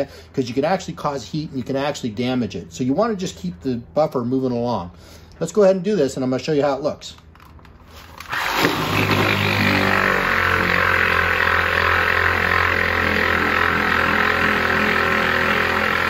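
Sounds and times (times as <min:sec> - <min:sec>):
buffer motor hum: 0:08.6 - 0:16.0.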